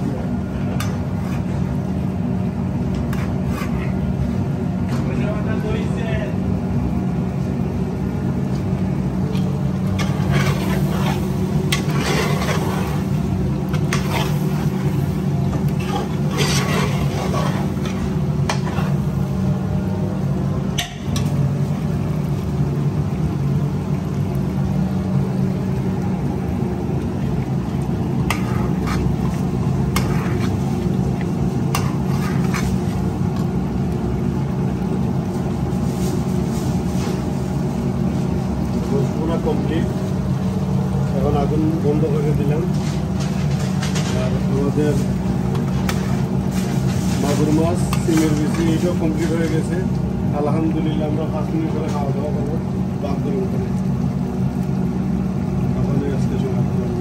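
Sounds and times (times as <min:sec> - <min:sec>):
kitchen hum and rumble: 0:00.0 - 0:57.0.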